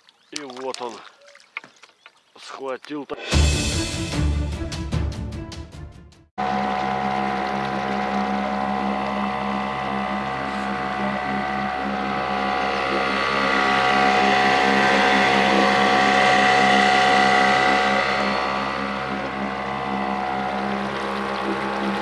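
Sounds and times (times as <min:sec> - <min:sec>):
outboard motor droning: 0:06.4 - 0:22.0.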